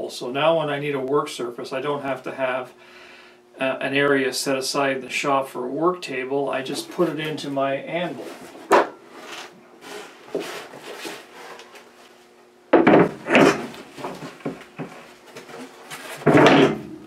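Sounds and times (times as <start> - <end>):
wood scraping on metal: 6.6 - 12.0, 12.8 - 17.0
wood knocking on metal: 12.7 - 15.0, 16.2 - 17.0.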